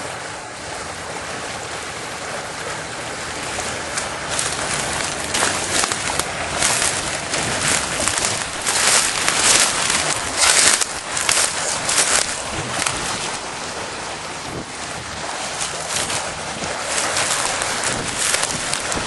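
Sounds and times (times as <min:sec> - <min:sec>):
steady rushing noise: 0:01.0 - 0:19.0
dry grass rustling against camera: 0:03.9 - 0:19.0.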